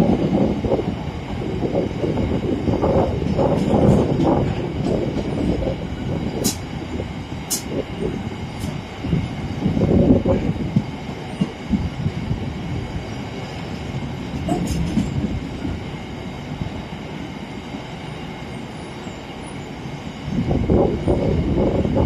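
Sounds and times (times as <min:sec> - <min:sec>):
train rumbling past: 0:00.0 - 0:22.0
wheels knocking on rails: 0:02.8 - 0:06.6, 0:14.3 - 0:15.8.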